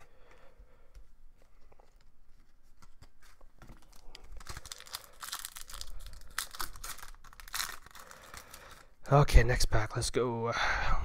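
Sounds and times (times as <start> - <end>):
foil wrapper ripping and crinkling: 2.8 - 9.0.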